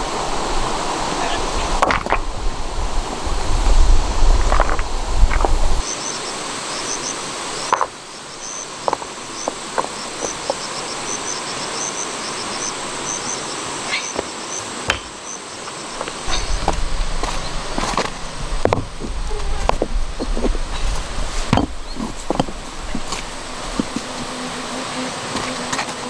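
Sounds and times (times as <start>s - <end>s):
steady background hiss: 0.0s - 26.0s
insects chirping: 0.2s - 26.0s
stones knocking: 1.8s - 2.3s, 4.4s - 5.6s, 7.7s - 8.0s, 8.8s - 10.6s, 14.2s - 15.2s, 16.0s - 20.6s, 21.4s - 24.3s.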